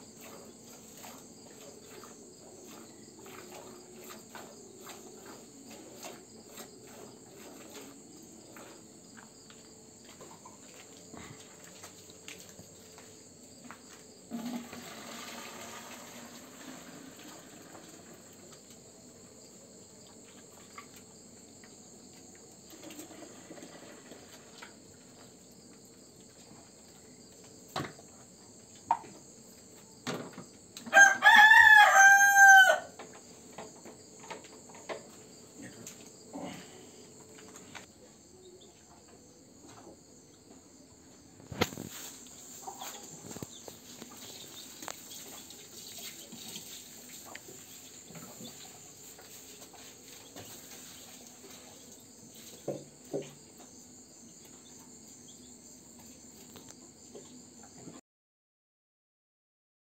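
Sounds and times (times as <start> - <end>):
crickets chirring: 0.0 - 58.0
milk pouring into plastic can: 14.3 - 18.3
rooster crowing: 30.8 - 33.0.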